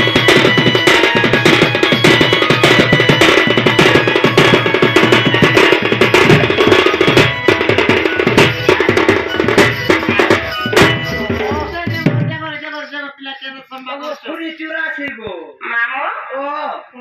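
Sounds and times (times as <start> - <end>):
steady held melody: 0.0 - 12.5
fast dense drumming: 0.0 - 12.6.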